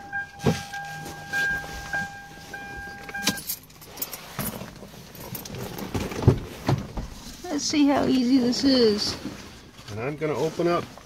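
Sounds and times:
car electronic warning tone: 0:00.0 - 0:03.6.

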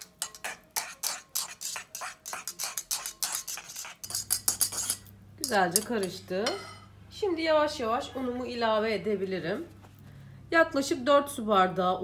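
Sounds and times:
whisk scraping and clicking in bowl: 0:00.0 - 0:06.2.

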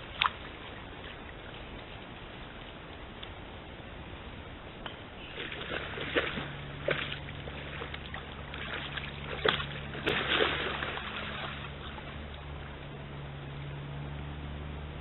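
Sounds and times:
deer splashing through water: 0:00.0 - 0:02.2, 0:05.2 - 0:13.2
stream running water: 0:00.0 - 0:03.8, 0:04.5 - 0:15.0.

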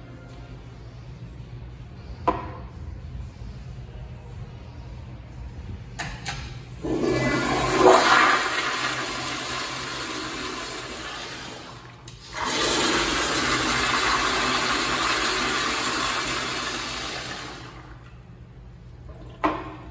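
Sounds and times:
toilet flushing: 0:06.8 - 0:18.1.

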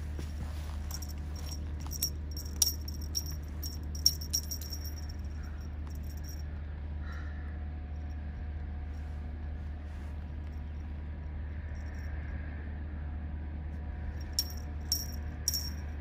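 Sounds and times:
metallic jingling and clicking: 0:00.6 - 0:06.6, 0:14.2 - 0:16.0.

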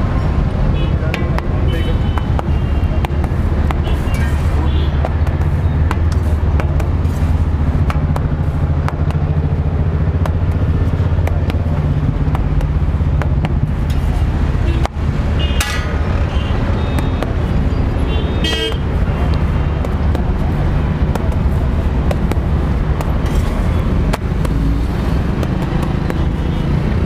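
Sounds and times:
road traffic rumble: 0:00.0 - 0:27.0
vehicle horn: 0:18.0 - 0:18.8.

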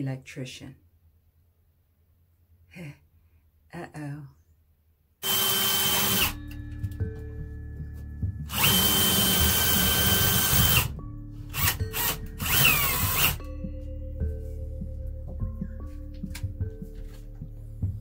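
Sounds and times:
cordless drill boring into wall: 0:05.2 - 0:06.4, 0:08.5 - 0:10.9, 0:11.5 - 0:13.4.

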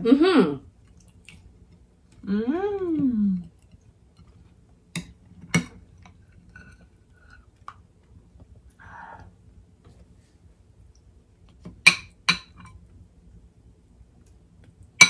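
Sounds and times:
faint chewing: 0:00.8 - 0:08.8.

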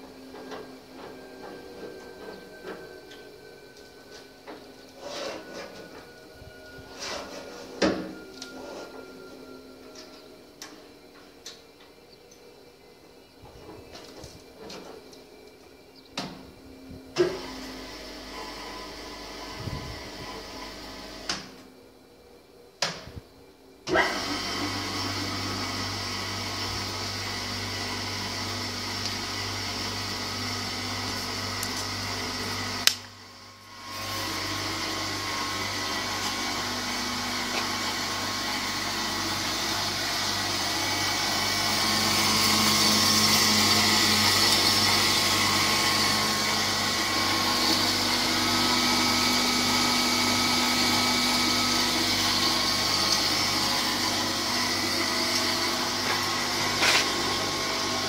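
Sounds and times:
band saw whining: 0:00.0 - 0:22.4, 0:23.0 - 0:58.0.

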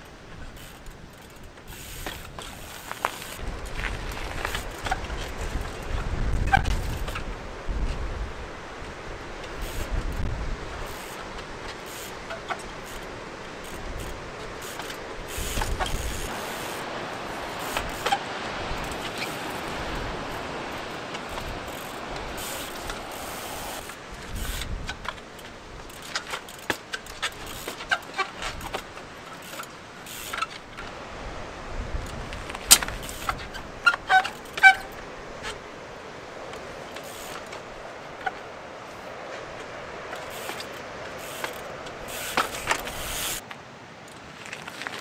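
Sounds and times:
wind: 0:00.0 - 0:45.0
bicycle knocking on rock: 0:00.5 - 0:07.3, 0:10.8 - 0:31.0, 0:32.0 - 0:35.6, 0:39.5 - 0:43.4
surf: 0:02.0 - 0:43.5.

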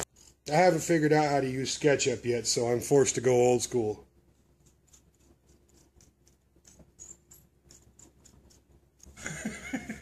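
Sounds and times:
drawing toy knobs ticking: 0:04.6 - 0:09.2.

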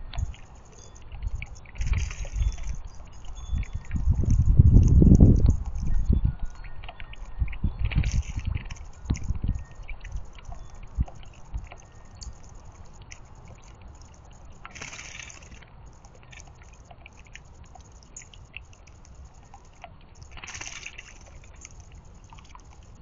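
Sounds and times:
fountain splashing and trickling: 0:00.0 - 0:23.0.

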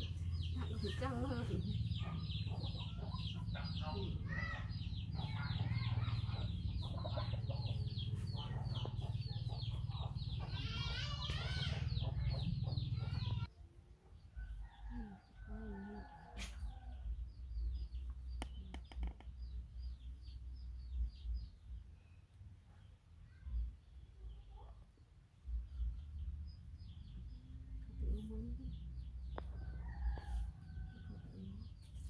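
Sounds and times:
chicks cheeping: 0:00.0 - 0:13.5.

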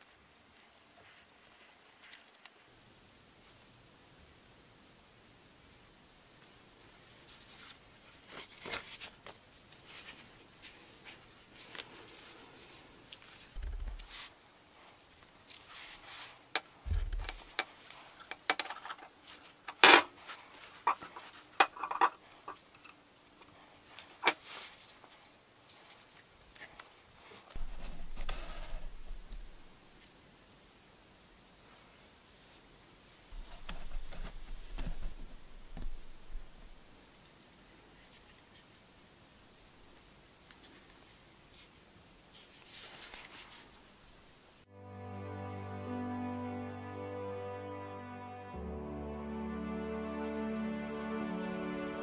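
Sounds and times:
dull thumps: 0:13.6 - 0:14.2, 0:16.9 - 0:17.6
leather rubbing and rustling: 0:27.5 - 0:30.0.

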